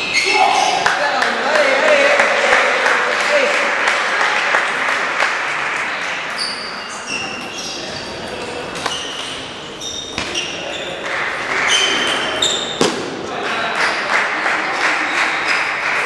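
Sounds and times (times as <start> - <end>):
shoes squeaking on floor: 0.0 - 0.8, 6.3 - 12.9
murmur of voices: 0.0 - 16.0.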